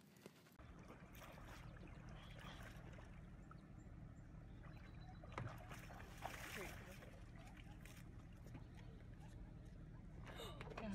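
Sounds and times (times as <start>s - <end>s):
faint water sounds: 0.0s - 10.9s.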